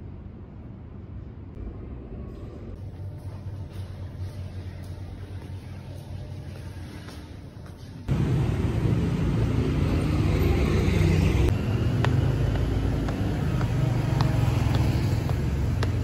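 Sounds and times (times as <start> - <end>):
low rumble of traffic: 0.0 - 16.0
footsteps on stone steps: 11.5 - 16.0.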